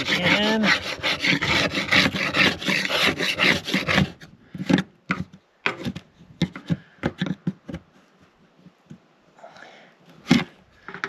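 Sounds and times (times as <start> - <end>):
hand scraper scraping sealant: 0.0 - 7.4.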